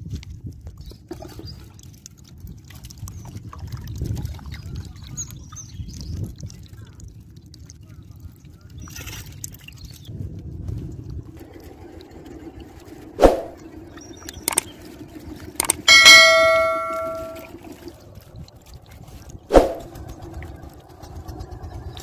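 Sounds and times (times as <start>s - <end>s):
short swoosh: 13.2s - 13.6s, 19.5s - 19.9s
bright bell ding: 15.9s - 17.4s.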